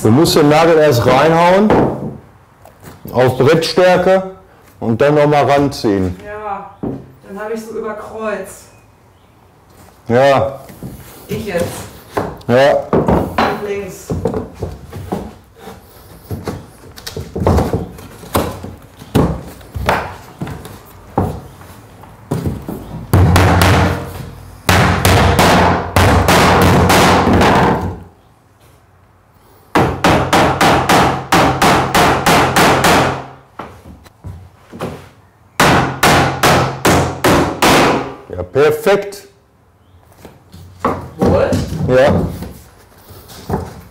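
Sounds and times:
hammer striking nails into wood: 23.1 - 24.1, 24.7 - 28.0, 29.7 - 33.4, 35.6 - 38.2.

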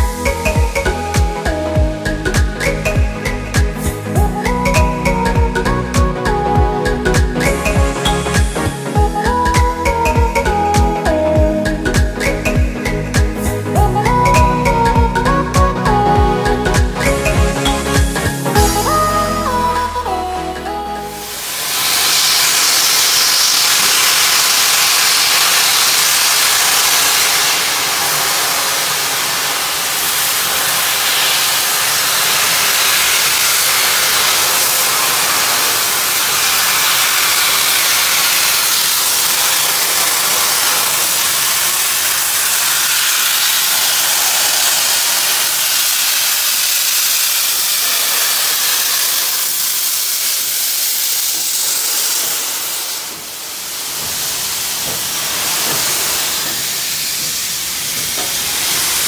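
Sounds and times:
steam locomotive venting steam: 21.2 - 59.0.

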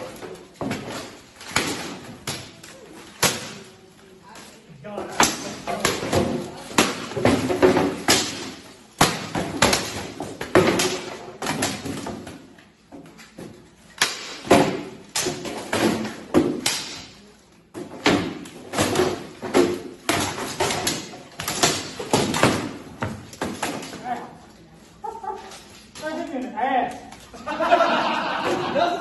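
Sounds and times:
swords striking shields and armour: 0.0 - 2.5, 5.1 - 12.5, 14.0 - 17.2, 17.8 - 24.2.

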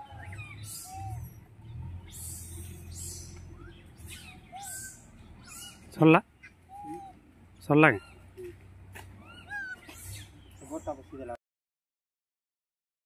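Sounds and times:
animal calls rising and falling: 0.0 - 10.4.

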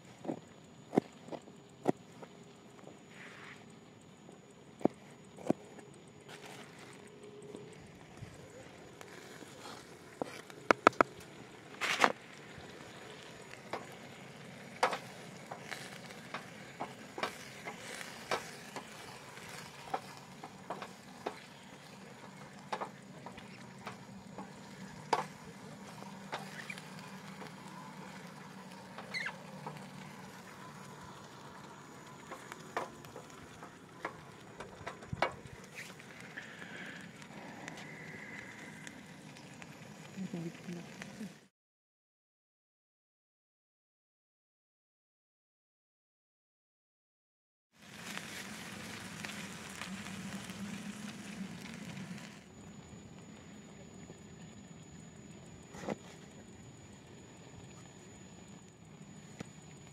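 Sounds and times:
pan sizzling: 6.3 - 41.4, 47.8 - 52.5.

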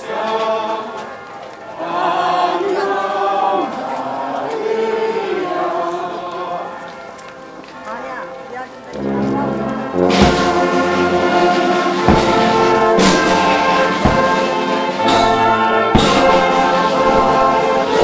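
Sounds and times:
brass band playing slow tune: 8.9 - 18.0
percussive beat: 10.1 - 18.0.

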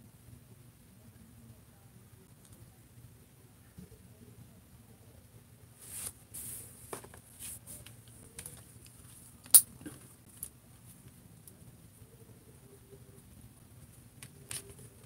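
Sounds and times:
plastic figure rustling and clicking: 14.2 - 15.0.

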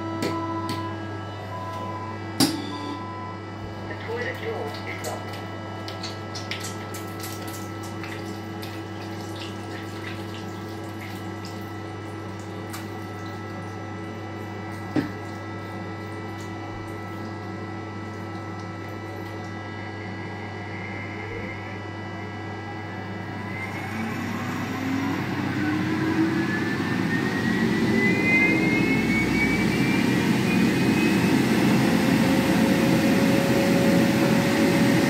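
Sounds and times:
hand dryer whine: 0.0 - 35.0
steady hum: 0.0 - 35.0
tap water running into basin: 4.8 - 19.6.

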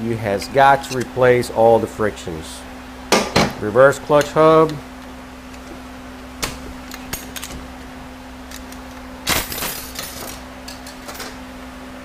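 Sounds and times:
metal clutch parts clinking: 6.4 - 11.4.

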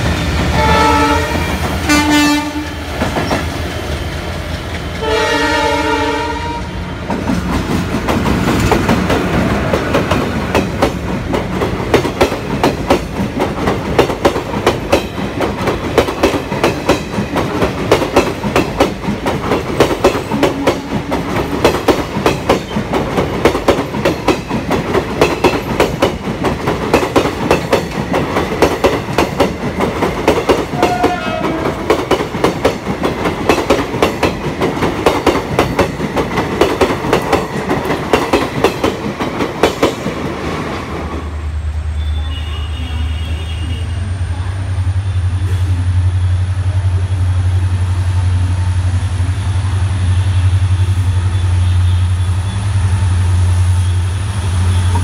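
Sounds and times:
train wheels clickety-clack: 0.0 - 6.3, 7.0 - 41.3, 53.8 - 55.0
diesel locomotive drone: 0.0 - 55.0.

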